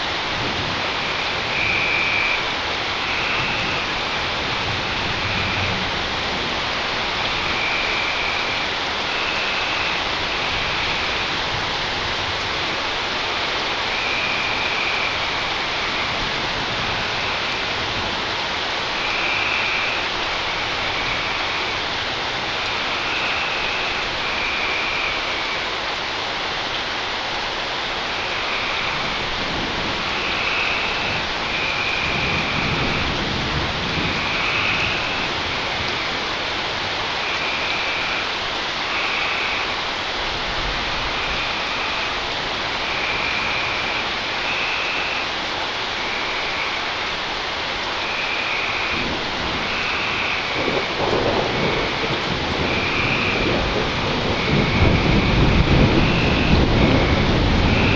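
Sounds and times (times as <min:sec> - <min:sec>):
steady rain: 0:00.0 - 0:57.9
distant thunder rumble: 0:28.1 - 0:44.6, 0:48.0 - 0:57.9.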